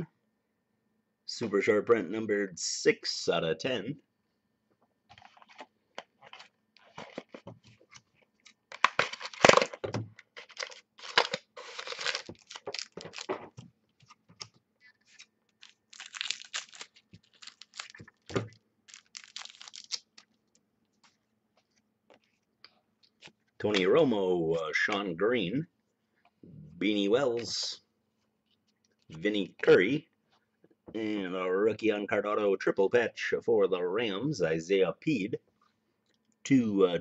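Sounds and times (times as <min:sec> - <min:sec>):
cards rustling: 0:05.1 - 0:22.5
wrapper tearing and crinkling: 0:08.4 - 0:13.4, 0:15.0 - 0:20.4.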